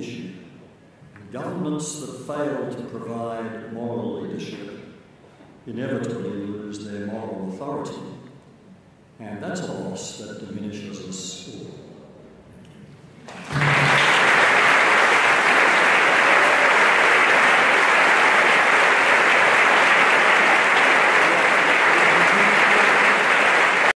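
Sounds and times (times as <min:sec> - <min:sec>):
audience applauding: 0:13.3 - 0:24.0.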